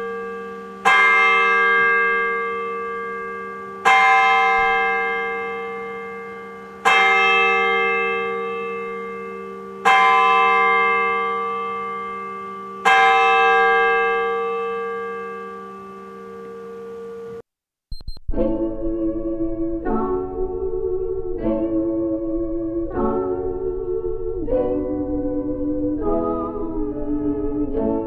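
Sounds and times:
church bell tolling: 0.0s - 17.4s.

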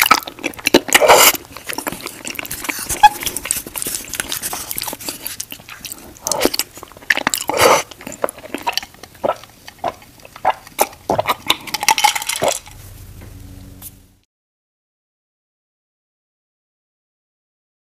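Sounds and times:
slurping and chewing: 0.0s - 12.8s
faint steady hum: 0.0s - 14.2s.

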